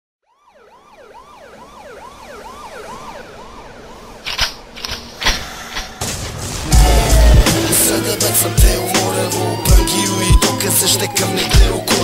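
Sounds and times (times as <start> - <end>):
siren wailing: 0.2 - 4.2, 6.7 - 12.0
sharp bangs: 5.3 - 9.2.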